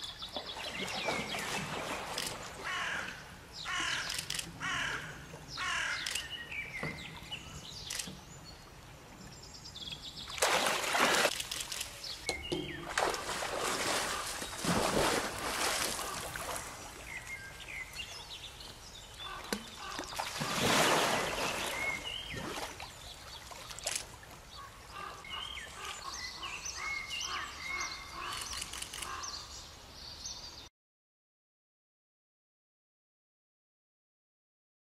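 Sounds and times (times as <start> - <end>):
bears splashing in water: 0.2 - 2.8, 10.3 - 12.0, 12.7 - 17.5, 19.2 - 24.4
small birds chirping: 5.1 - 10.4, 21.1 - 30.7.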